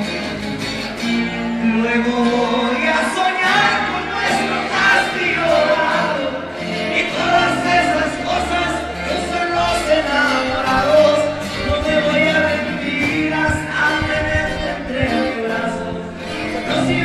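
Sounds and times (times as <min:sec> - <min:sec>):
acoustic guitar: 0:00.0 - 0:17.0
man singing a ballad: 0:01.5 - 0:17.0
low bass notes: 0:03.6 - 0:17.0.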